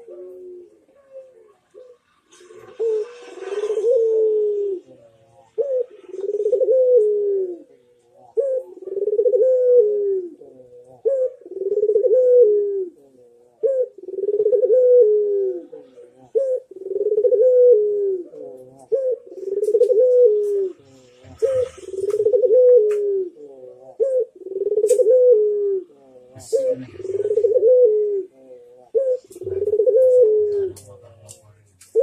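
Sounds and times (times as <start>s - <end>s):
dove cooing: 0.0s - 31.2s.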